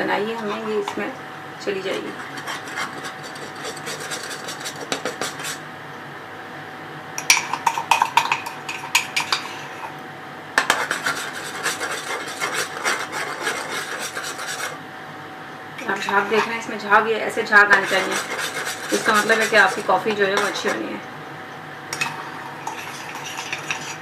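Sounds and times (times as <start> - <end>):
spoon scraping a container: 0.2 - 1.0, 1.9 - 5.6, 10.6 - 14.8, 15.8 - 16.6, 17.5 - 20.8, 22.0 - 24.0.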